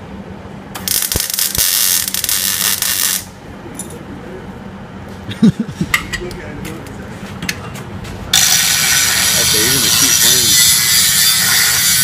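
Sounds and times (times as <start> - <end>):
welding arc crackling: 0.8 - 3.4, 8.3 - 12.0.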